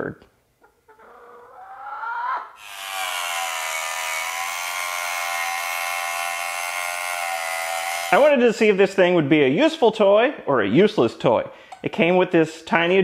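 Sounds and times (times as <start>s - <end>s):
table saw motor whining: 2.6s - 8.3s
saw cutting wood: 2.6s - 8.4s.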